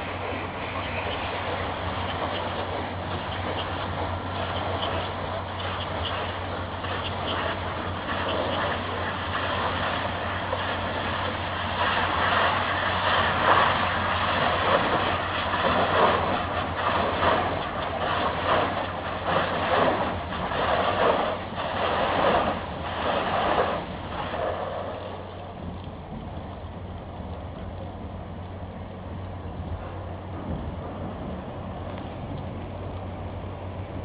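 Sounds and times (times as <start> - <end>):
high-pressure water jets hissing: 0.0 - 25.2
low machine hum: 0.0 - 34.0.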